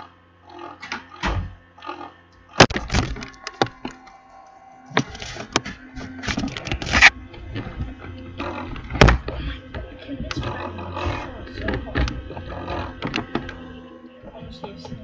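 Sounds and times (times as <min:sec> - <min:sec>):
rustling and clatter: 0:05.0 - 0:15.0.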